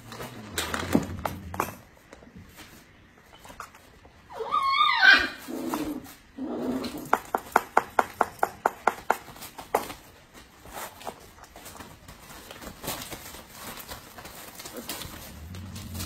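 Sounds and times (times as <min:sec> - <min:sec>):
dog whining: 0:04.3 - 0:07.1.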